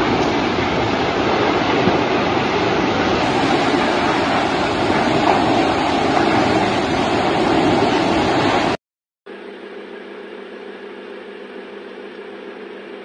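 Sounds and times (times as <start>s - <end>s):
fire burning with rushing noise: 0.0s - 8.8s.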